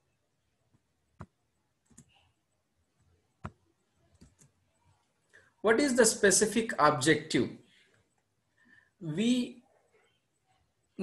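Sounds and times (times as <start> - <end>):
computer mouse clicks: 1.2 - 2.2, 3.4 - 4.6.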